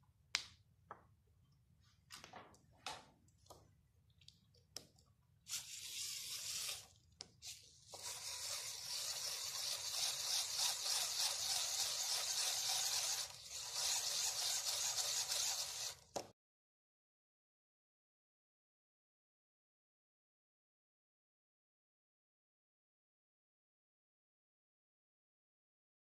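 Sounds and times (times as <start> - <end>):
motor scraping rush: 5.5 - 16.0.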